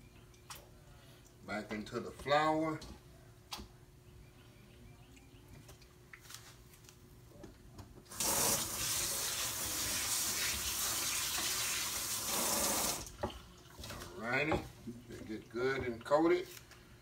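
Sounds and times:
running water hiss: 8.1 - 13.1.

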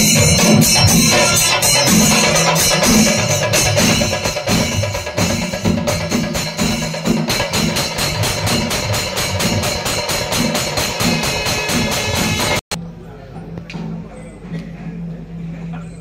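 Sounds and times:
hand cymbals jingling: 0.0 - 12.6
drums beaten in fast rhythm: 0.0 - 12.8.

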